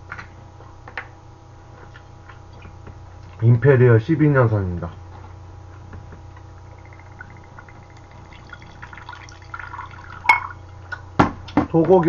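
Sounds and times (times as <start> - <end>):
liquid glugging into a glass: 6.8 - 10.6
glass clink: 9.1 - 10.6.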